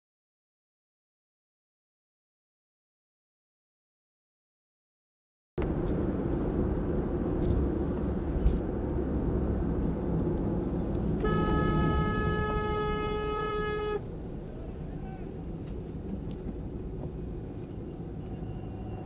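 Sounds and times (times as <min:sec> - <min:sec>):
car tyre and wind noise: 0:05.6 - 0:19.0
truck horn blast: 0:11.2 - 0:14.0.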